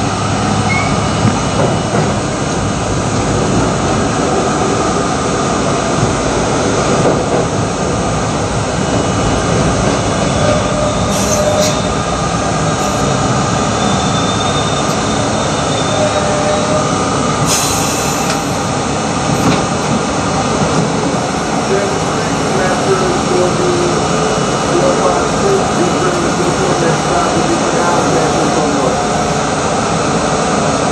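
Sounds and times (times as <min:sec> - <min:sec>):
subway wheels rumbling on rail: 0:00.0 - 0:30.9
faint wheel squeal: 0:10.5 - 0:12.0
high-pitched screeches: 0:10.5 - 0:12.0, 0:12.8 - 0:16.7.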